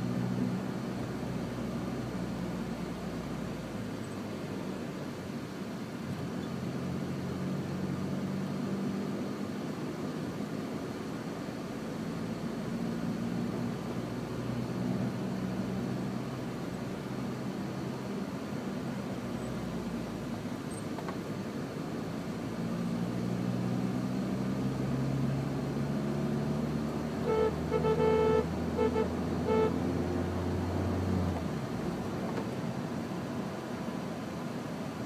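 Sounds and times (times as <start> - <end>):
car engine accelerating: 22.0 - 33.6
car horn toots: 27.2 - 30.0.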